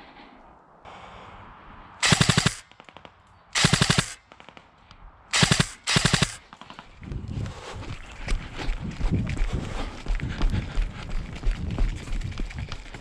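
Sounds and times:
airsoft gun full-auto bursts: 2.0 - 4.6, 5.3 - 6.7
running footsteps: 5.4 - 13.0.

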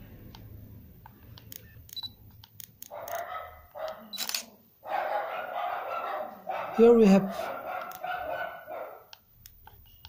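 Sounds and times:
camera focus beeps: 1.4 - 2.2, 4.1 - 4.4
dog barking: 2.9 - 4.2, 4.8 - 9.1
camera shutter clacks: 4.1 - 4.5.

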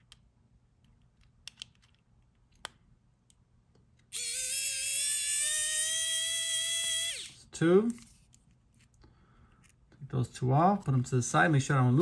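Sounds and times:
electric screwdriver motor whine: 4.2 - 7.4.

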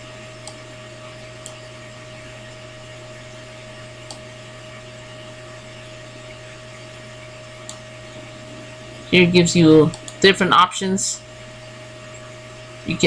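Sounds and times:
electrical hum and hiss: 0.0 - 13.0
faint whine: 0.0 - 13.0
computer mouse clicks: 4.0 - 4.3, 9.9 - 10.2.

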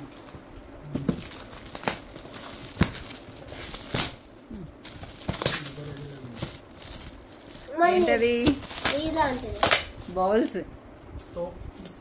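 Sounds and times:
foil gift wrap crinkling and tearing: 0.0 - 10.6.

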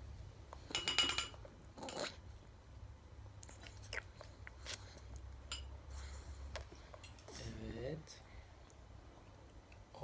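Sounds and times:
metal spoon clinking on dish: 0.7 - 2.0, 5.5 - 5.7.

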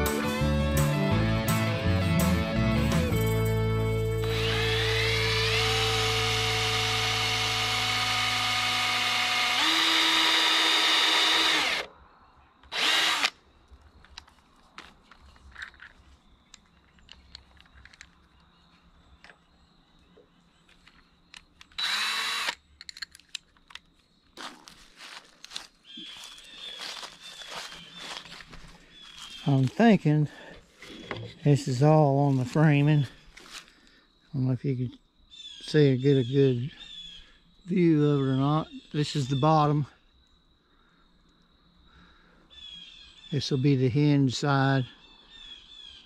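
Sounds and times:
power drill running: 3.9 - 11.9, 12.7 - 13.3, 21.8 - 22.6.

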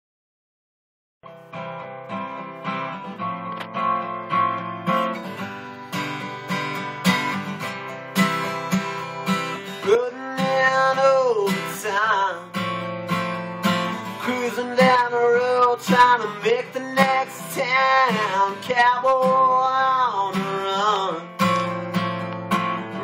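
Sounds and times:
acoustic guitar strumming: 1.2 - 23.0
man singing: 9.8 - 12.8, 13.8 - 21.8.

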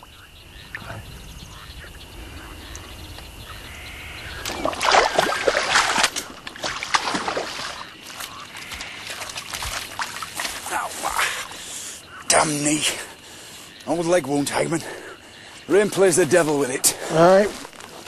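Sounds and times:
boots splashing through water: 4.4 - 11.4.

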